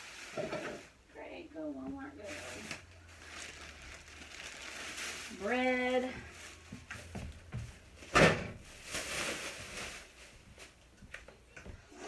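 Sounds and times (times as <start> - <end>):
groceries handling noise: 2.3 - 11.4.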